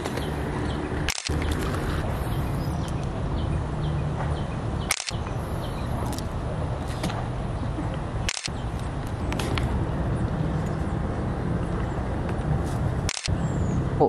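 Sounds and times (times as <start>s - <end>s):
low outdoor rumble: 0.0s - 14.0s
sharp click: 1.1s - 1.4s, 4.9s - 5.3s, 8.3s - 8.5s, 13.1s - 13.3s.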